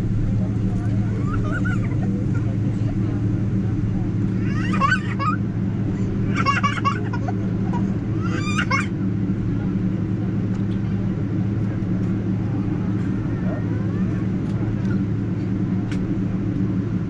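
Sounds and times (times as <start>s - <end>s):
airplane cabin drone: 0.0s - 17.0s
young child squealing: 8.2s - 8.9s.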